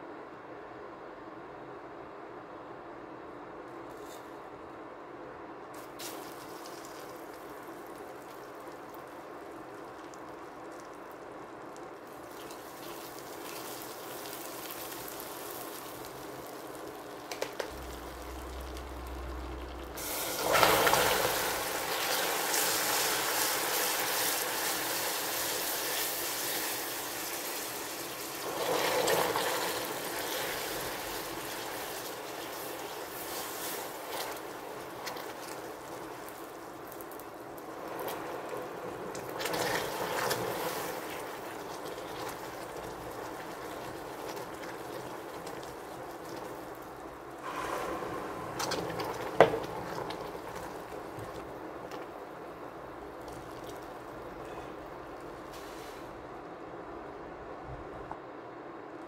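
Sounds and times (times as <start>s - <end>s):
caramel sizzling in saucepan: 5.8s - 56.2s
loud hiss and hard bubbling: 5.8s - 56.3s
water pouring into caramel: 17.7s - 54.4s.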